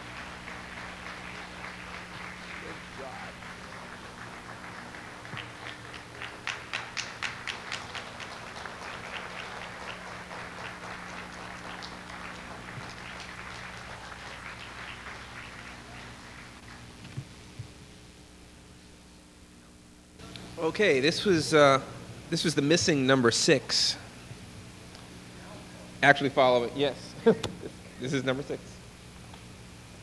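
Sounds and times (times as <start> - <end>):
audience applauding: 0.0 - 16.9
steady low hum: 0.0 - 30.0.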